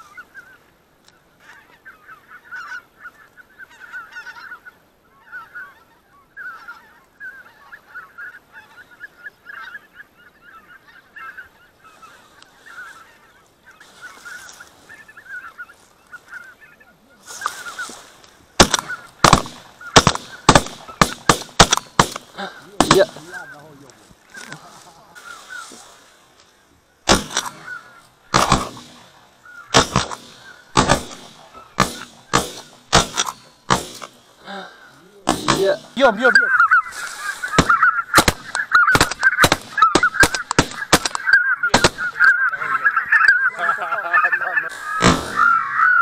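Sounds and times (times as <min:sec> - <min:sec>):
geese honking: 0:00.0 - 0:46.0
rustle: 0:00.0 - 0:46.0
shotgun shots: 0:18.6 - 0:23.4, 0:27.1 - 0:34.4, 0:35.2 - 0:36.2, 0:37.5 - 0:42.2, 0:44.7 - 0:45.8.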